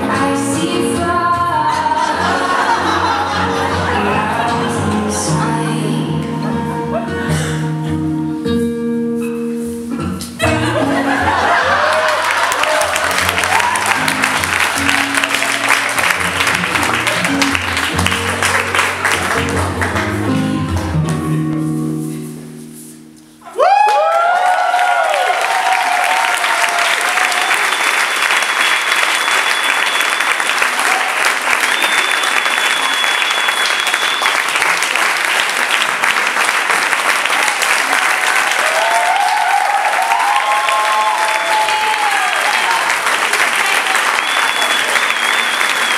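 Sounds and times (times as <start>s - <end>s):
crowd cheering and calling: 1.9s - 5.2s, 10.4s - 20.2s, 23.4s - 45.9s
audience applause: 11.0s - 21.0s, 23.6s - 45.9s.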